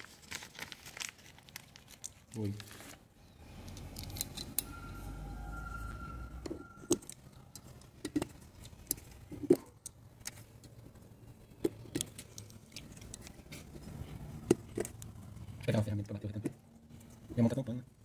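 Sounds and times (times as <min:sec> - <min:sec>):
small metal parts clicking: 0:03.6 - 0:04.8.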